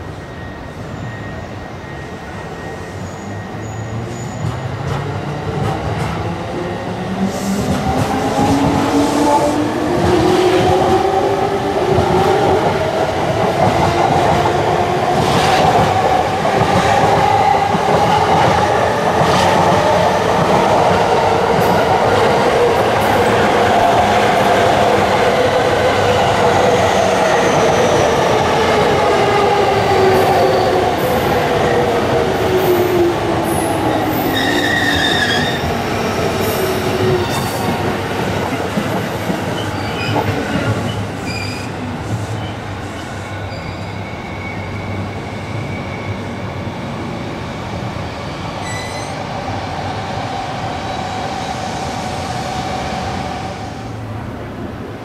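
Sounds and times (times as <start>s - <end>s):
train wheels rumbling on rail: 0.0s - 55.0s
high wheel squeals: 0.2s - 4.8s, 42.3s - 46.5s, 48.6s - 49.2s.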